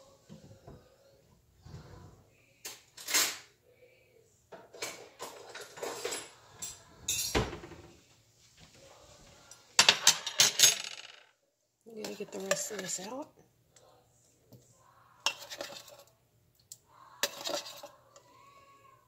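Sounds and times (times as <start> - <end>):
dishes and utensils clinking: 4.5 - 7.9, 9.8 - 11.2, 12.0 - 13.2, 15.2 - 16.1, 17.2 - 18.3.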